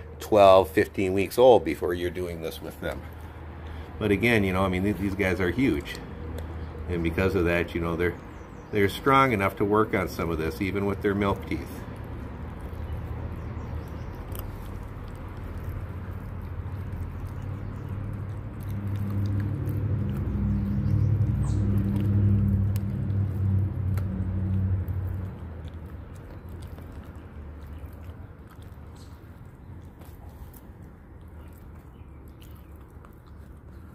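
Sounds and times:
puppies chewing fish: 0.0s - 33.9s
low humming rumble: 12.0s - 33.9s.

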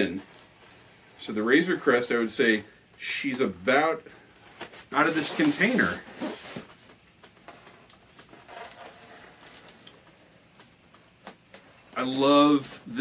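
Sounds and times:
scratching at packing tape: 4.6s - 10.8s.

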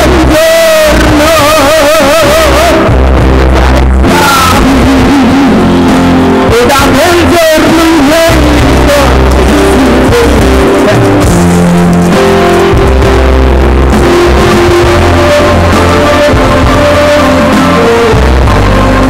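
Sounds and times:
bass line: 0.0s - 19.0s
electric guitar: 0.0s - 19.0s
keyboard: 0.0s - 19.0s.

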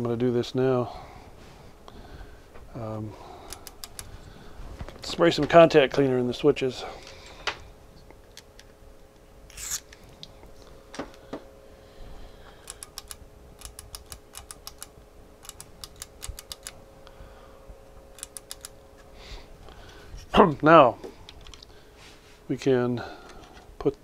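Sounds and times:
switches clicking: 3.5s - 4.1s, 12.6s - 16.8s, 18.1s - 18.8s.

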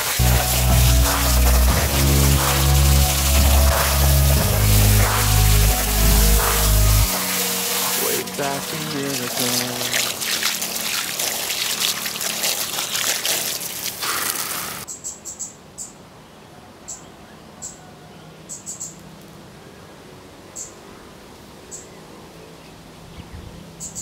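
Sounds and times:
hose water spraying: 0.0s - 14.9s.

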